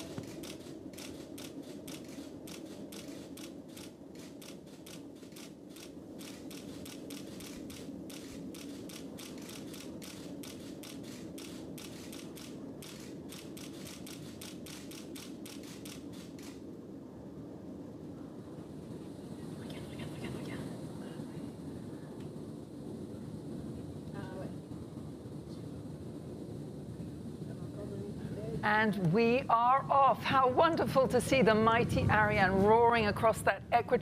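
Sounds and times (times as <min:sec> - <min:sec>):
rocket rumbling and crackling: 0:00.0 - 0:34.0.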